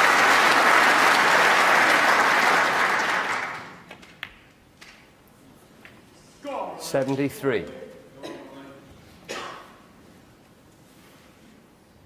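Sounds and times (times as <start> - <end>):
audience applauding: 0.0 - 4.0.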